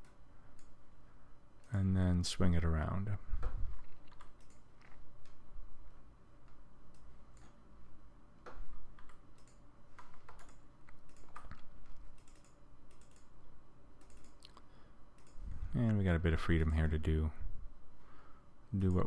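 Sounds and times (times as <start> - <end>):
low steady hum: 0.0 - 19.0
mouse and keyboard clicks: 3.8 - 5.4, 8.4 - 13.3.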